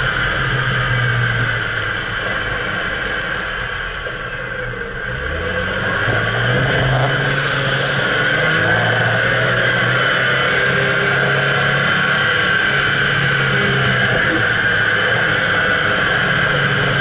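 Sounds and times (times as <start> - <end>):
car engine running: 0.0 - 17.0.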